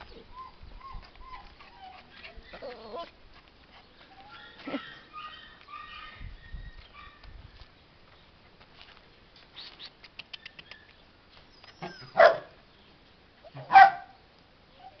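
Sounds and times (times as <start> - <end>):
faint clicks: 9.6 - 11.0
dog barking: 12.2 - 12.6, 13.6 - 14.2.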